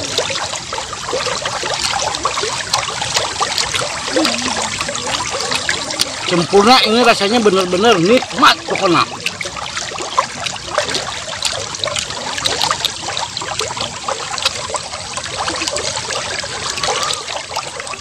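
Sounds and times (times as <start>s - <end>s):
trickling watery hiss: 0.0s - 18.0s
wet chewing and lip-smacking: 1.7s - 6.4s.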